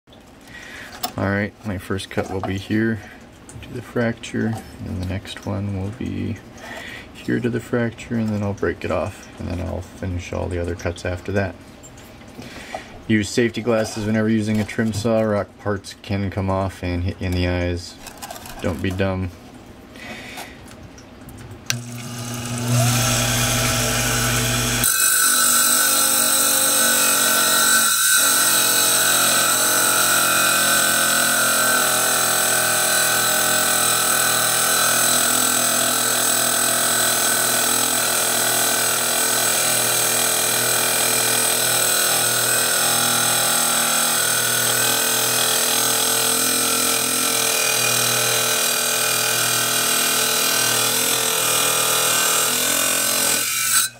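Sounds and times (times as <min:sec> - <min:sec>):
saw motor running: 0:21.7 - 0:53.9
saw blade grinding through stone: 0:21.8 - 0:53.9.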